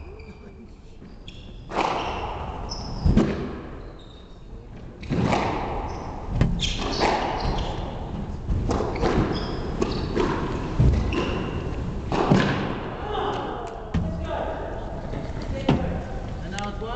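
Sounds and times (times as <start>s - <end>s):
shoes squeaking on wooden floor: 0.0s - 2.1s, 5.8s - 12.0s
squash ball smacking off rackets and walls: 3.0s - 3.7s, 5.0s - 14.1s.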